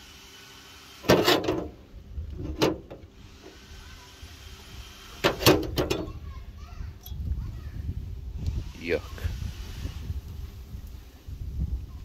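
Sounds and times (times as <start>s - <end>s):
metal clunks and scrapes: 1.0s - 3.6s, 5.2s - 6.2s.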